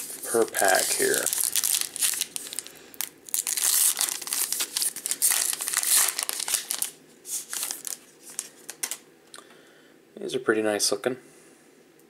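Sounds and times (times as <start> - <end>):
wrapper crinkling and tearing: 0.0 - 9.0.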